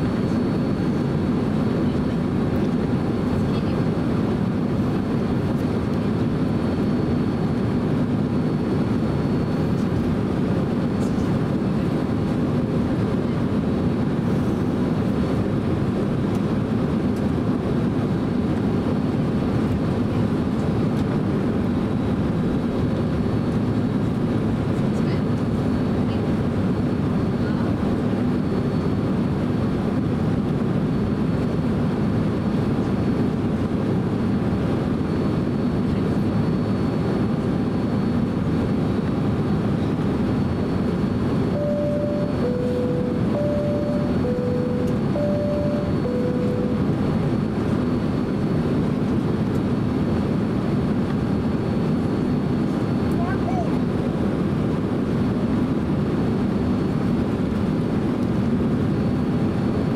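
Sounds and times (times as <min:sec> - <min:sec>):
aircraft cabin rumble: 0:00.0 - 0:59.9
faint high whine: 0:39.7 - 0:47.6.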